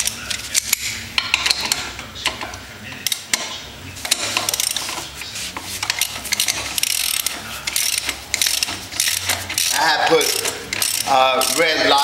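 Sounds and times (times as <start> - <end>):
socket ratchet clicking: 5.8 - 11.7.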